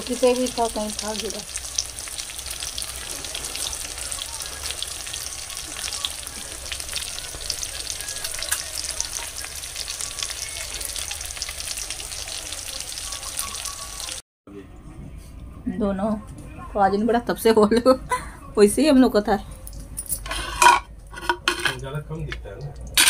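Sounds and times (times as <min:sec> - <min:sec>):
food frying in oil: 0:00.0 - 0:14.2.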